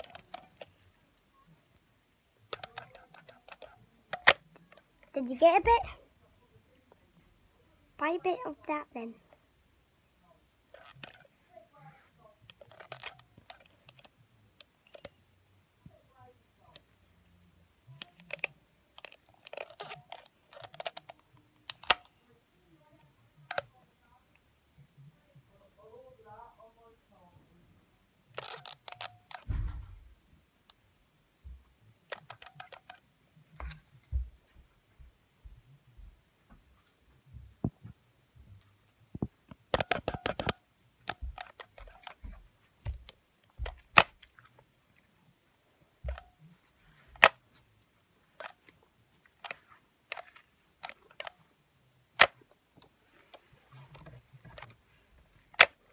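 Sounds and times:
toy jaws clicking: 0:00.0 - 0:00.7, 0:02.5 - 0:04.8, 0:10.7 - 0:11.3, 0:12.5 - 0:14.1, 0:18.0 - 0:22.1, 0:28.4 - 0:29.5, 0:32.1 - 0:33.0.

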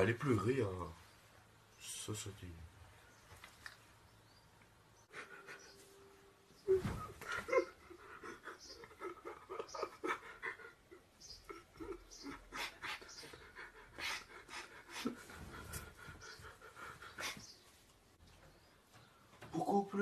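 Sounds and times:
person sobbing: 0:06.7 - 0:12.9.

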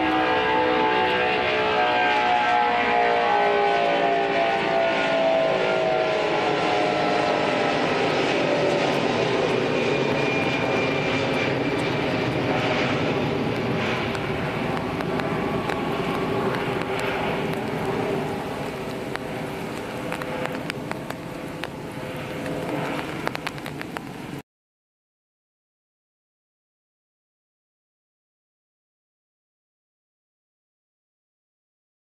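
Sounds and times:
faint high engine whine: 0:00.0 - 0:24.4
jet engines rumbling: 0:00.0 - 0:24.4.

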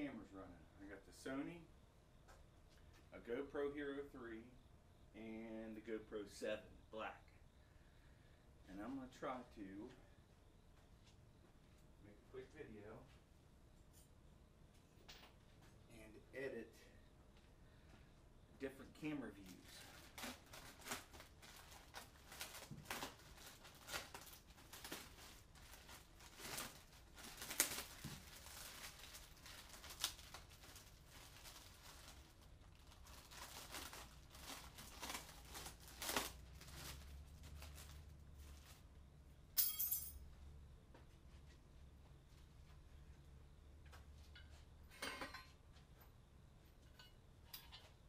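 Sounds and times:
plastic bags rustling: 0:19.5 - 0:38.9.

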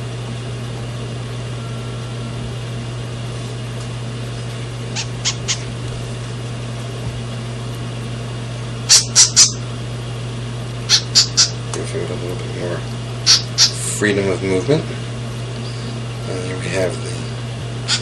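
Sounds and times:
low electrical hum: 0:00.0 - 0:18.0
parrot chick peeping: 0:04.9 - 0:05.7, 0:08.9 - 0:09.6, 0:10.9 - 0:11.6, 0:13.2 - 0:13.8.

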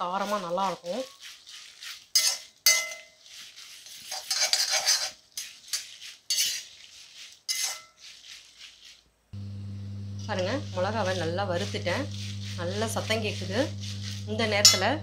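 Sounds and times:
metal spatula scraping a pan: 0:00.0 - 0:09.0, 0:10.1 - 0:15.0
chillies rustling: 0:00.0 - 0:15.0.

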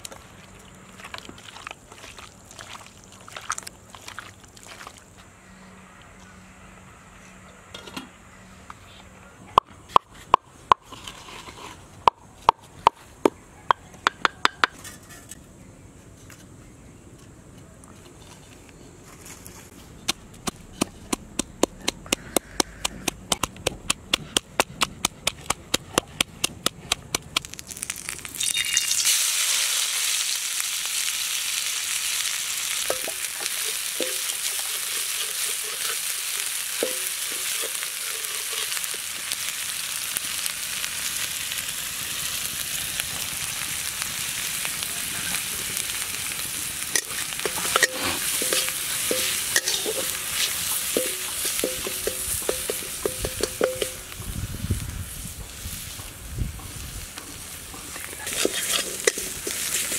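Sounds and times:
food sizzling in hot oil: 0:27.4 - 0:59.9
stirring utensil knocks: 0:51.0 - 0:54.0.

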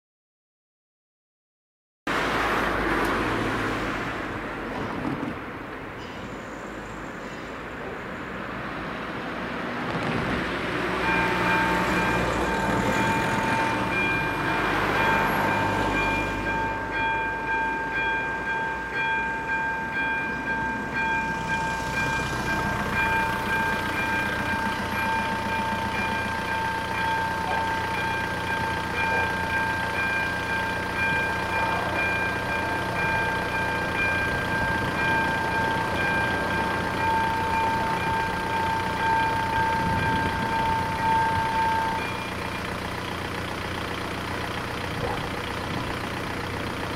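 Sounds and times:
car engines running: 0:02.1 - 0:46.9
level crossing bell dinging: 0:11.1 - 0:42.8.

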